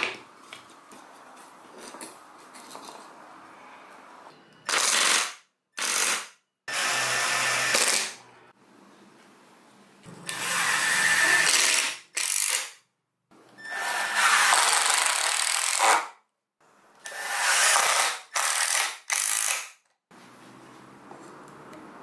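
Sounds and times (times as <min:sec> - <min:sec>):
power driver driving screws into wood: 0:04.7 - 0:08.2, 0:10.3 - 0:12.8, 0:13.7 - 0:16.1, 0:17.1 - 0:19.8.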